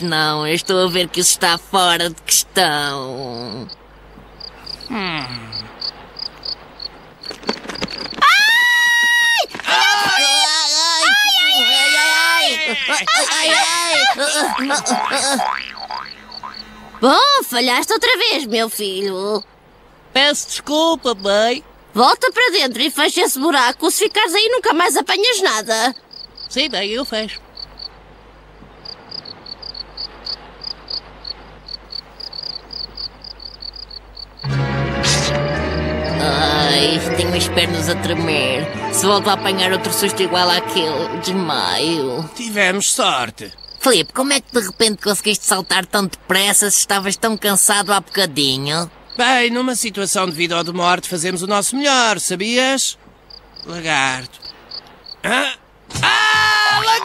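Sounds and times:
faint steady hiss: 0.0 - 56.1
crickets chirping: 3.2 - 8.3, 11.1 - 37.2, 40.8 - 55.3
sharp cracks of splintering wood: 7.2 - 8.6
loud high cry: 8.2 - 14.7, 55.3 - 57.0.

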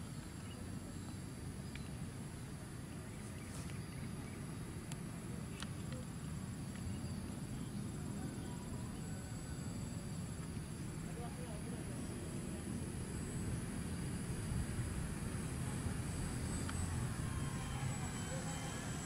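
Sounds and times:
low wind rumble: 0.0 - 19.0
high-pitched insect drone: 8.0 - 19.0.

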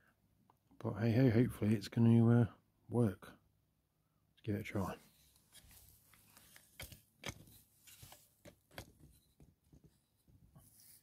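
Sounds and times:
faint clicks and knocks: 5.4 - 10.6.

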